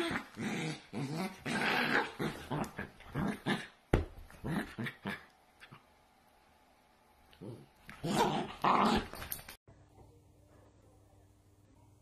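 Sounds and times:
dog growling playfully: 0.0s - 5.8s, 7.4s - 9.2s.

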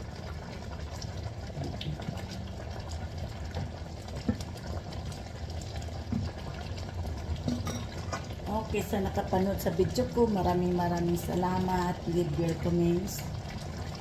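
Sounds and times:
broth simmering: 0.0s - 14.0s
wood knocking on pan: 7.4s - 8.3s.

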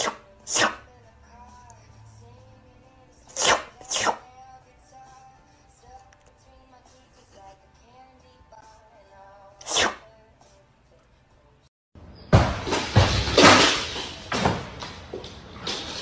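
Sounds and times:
cat sneezing: 0.0s - 0.9s, 3.3s - 4.3s, 9.6s - 10.0s
soft music: 0.3s - 11.7s.

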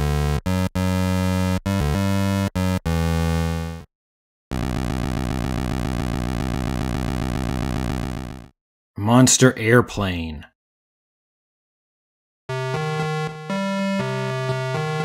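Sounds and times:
buzzy electronic held tones: 4.5s - 8.5s
pulsing electronic buzzing tone: 4.5s - 8.5s.

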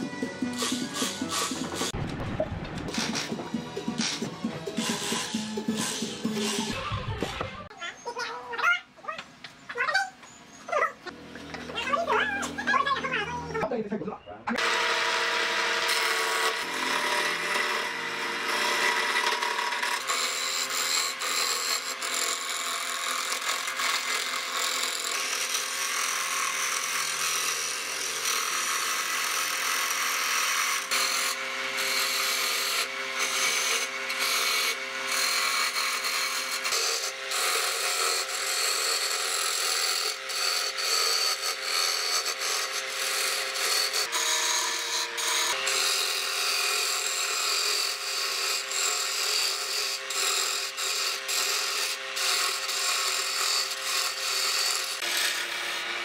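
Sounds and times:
chisel scraping spinning wood: 14.6s - 55.9s
lathe humming: 14.6s - 56.0s.

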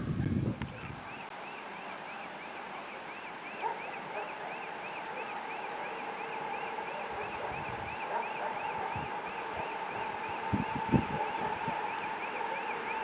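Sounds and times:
faint electric locomotive hum: 3.6s - 13.0s.

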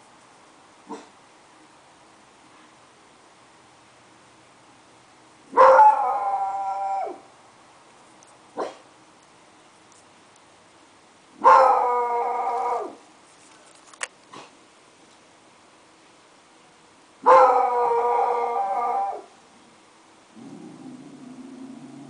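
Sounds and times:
dog howling: 5.6s - 7.2s, 11.5s - 13.0s, 17.3s - 19.3s.

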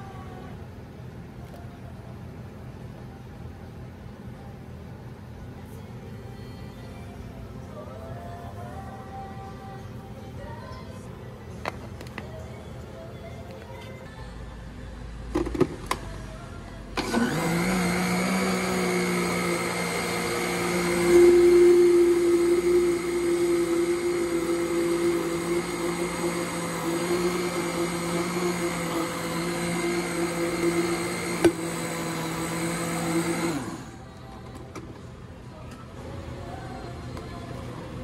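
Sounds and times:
blender motor running: 17.0s - 34.0s.

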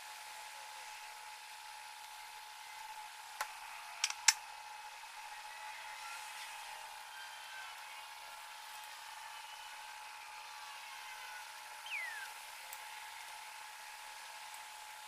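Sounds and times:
faint steady tone: 9.0s - 13.3s.

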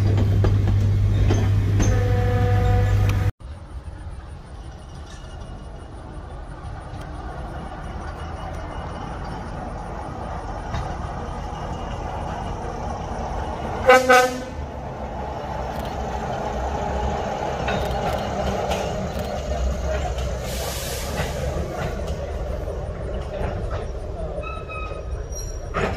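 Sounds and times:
diesel engine rumble: 0.0s - 25.9s
train horn blasts: 1.8s - 3.3s, 13.8s - 14.8s.

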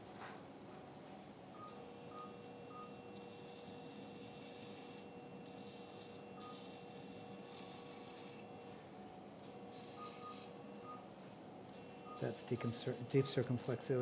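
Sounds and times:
equipment hum: 0.0s - 14.0s
short beeps: 9.5s - 11.0s, 11.9s - 13.5s.

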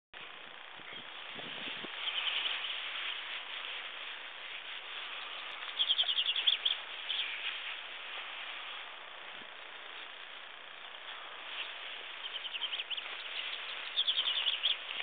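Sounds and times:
steady hiss: 0.2s - 15.0s
chaffinch singing: 0.7s - 8.5s, 10.8s - 15.0s.

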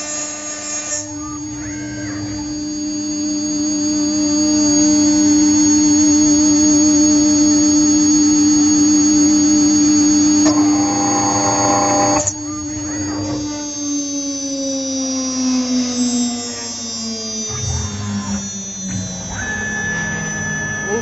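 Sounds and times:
router spindle high whine: 0.0s - 21.0s
end mill cutting metal: 9.2s - 13.8s.

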